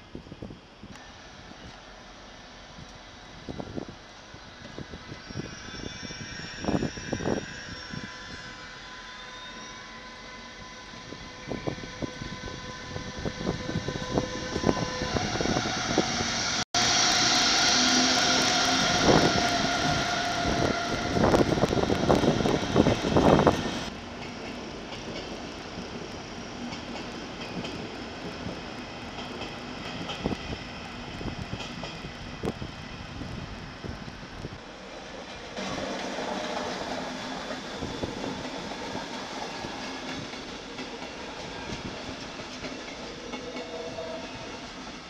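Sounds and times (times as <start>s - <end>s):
electric locomotive whine: 0.1s - 45.0s
train wheel clatter: 35.2s - 45.0s.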